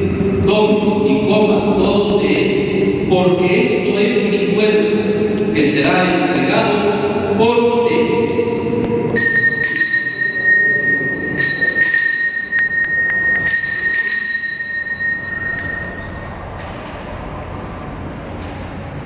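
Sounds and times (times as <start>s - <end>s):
altar bells ringing: 9.1s - 16.6s.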